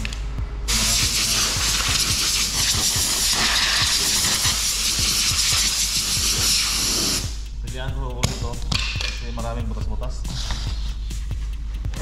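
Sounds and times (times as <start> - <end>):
air blow gun hissing: 0.7 - 7.5.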